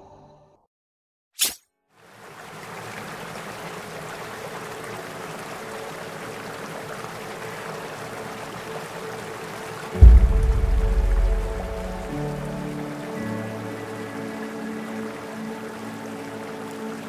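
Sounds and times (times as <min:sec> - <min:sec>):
river water rushing over stones: 0:02.0 - 0:17.0.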